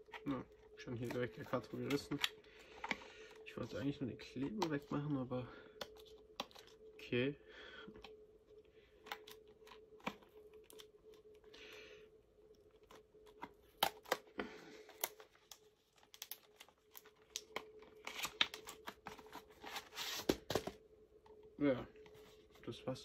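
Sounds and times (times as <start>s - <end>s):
plastic wrapping crinkling: 12.8s - 20.7s.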